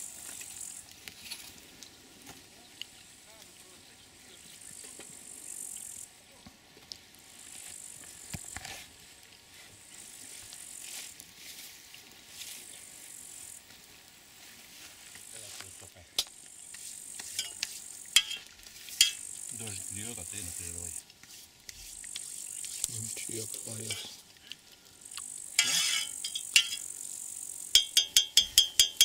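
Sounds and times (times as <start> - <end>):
insects chirring: 0.0 - 6.4, 7.3 - 9.1, 9.8 - 29.0
metal spoon clinking in mug: 25.6 - 26.8, 27.8 - 29.0.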